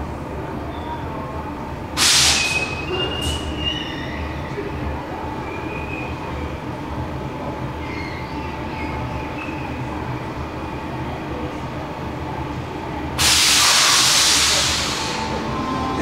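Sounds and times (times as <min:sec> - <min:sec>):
train low rumble: 0:00.0 - 0:16.0
loud air hiss: 0:02.0 - 0:03.5, 0:13.2 - 0:15.6
faint high squeals: 0:02.4 - 0:04.7.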